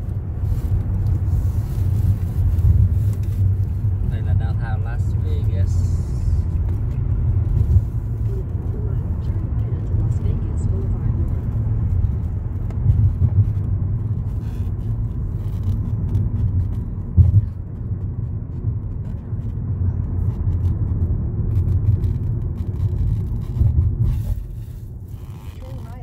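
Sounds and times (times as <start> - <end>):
car road rumble: 0.0 - 26.0.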